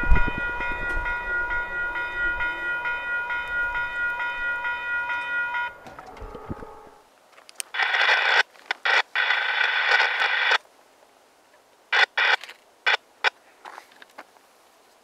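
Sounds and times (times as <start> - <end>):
passing train rumble: 0.0 - 7.1
radio static hiss bursts: 7.7 - 10.6, 11.9 - 13.4.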